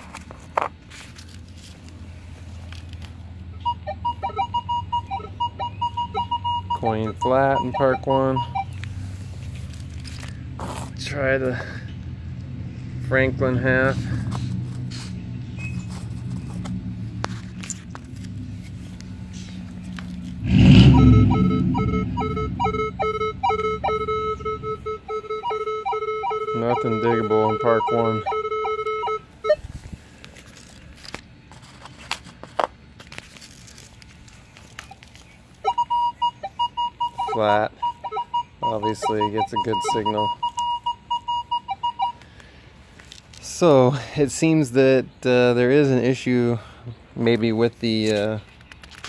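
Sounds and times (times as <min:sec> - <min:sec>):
metal detector short beeps: 0:03.6 - 0:08.8, 0:20.7 - 0:29.6, 0:35.6 - 0:42.2
metal detector hum: 0:03.6 - 0:10.2, 0:13.1 - 0:29.9, 0:35.6 - 0:42.2
low rumble: 0:09.5 - 0:25.1.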